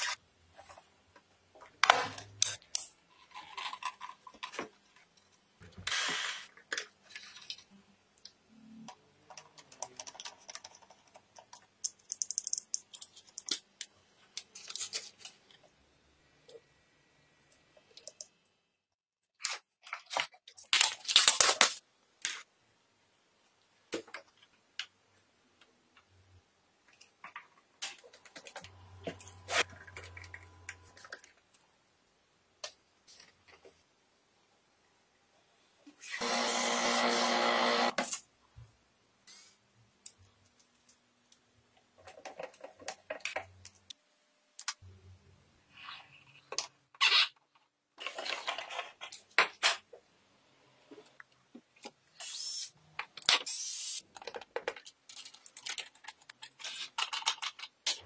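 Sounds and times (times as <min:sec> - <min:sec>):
hands handling small parts: 0:00.0 - 0:15.7, 0:51.1 - 0:58.0.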